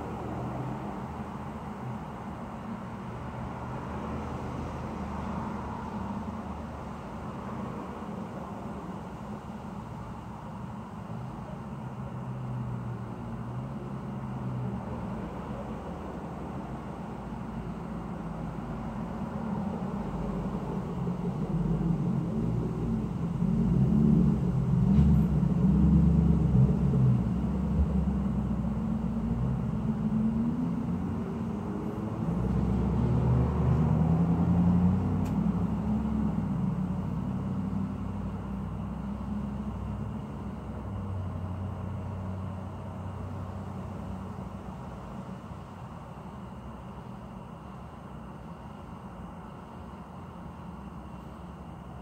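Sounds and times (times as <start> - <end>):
motor vehicles passing: 0.0 - 9.0, 12.5 - 45.0.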